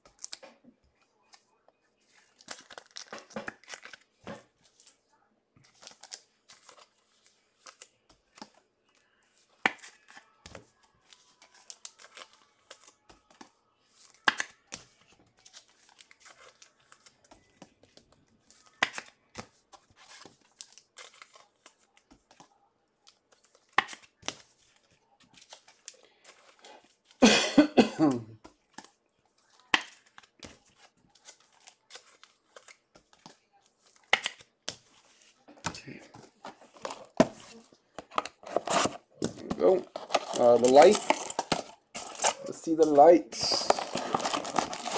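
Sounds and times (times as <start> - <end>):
card wrappers crinkling and ripping: 0.0 - 0.6, 1.2 - 27.2, 28.4 - 44.9
person coughing: 27.2 - 28.4.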